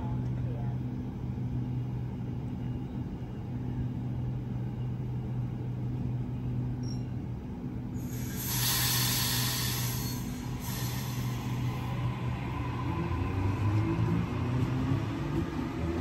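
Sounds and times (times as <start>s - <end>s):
train equipment humming: 0.0s - 16.0s
air brakes hissing: 8.0s - 12.0s.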